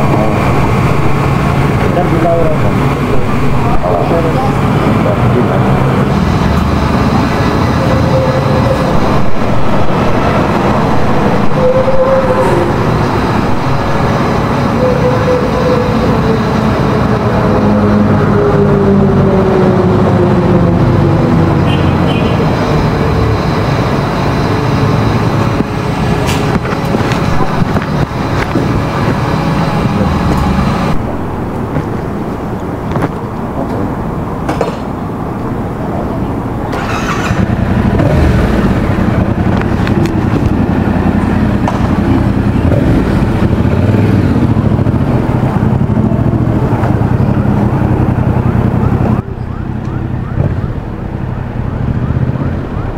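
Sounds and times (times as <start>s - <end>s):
road traffic rumble: 0.0s - 52.9s
motorcycle engine running: 21.6s - 32.3s, 36.8s - 49.1s.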